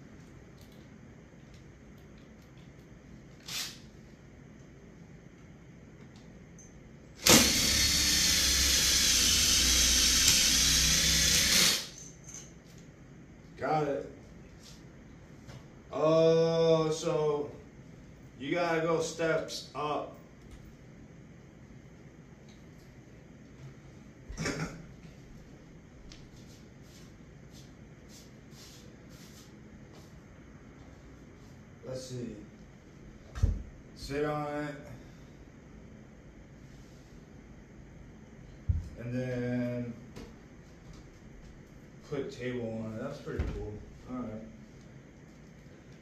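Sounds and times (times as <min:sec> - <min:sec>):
cordless drill running: 0:07.2 - 0:12.0.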